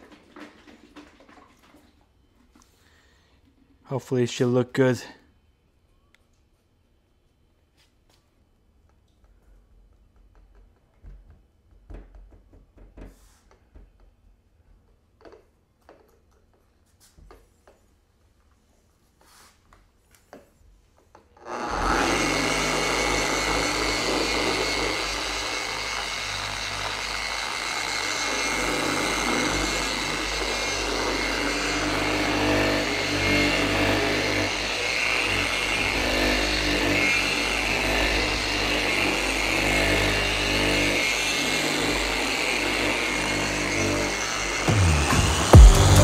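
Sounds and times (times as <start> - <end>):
orbital polisher running: 21.4 - 46.0.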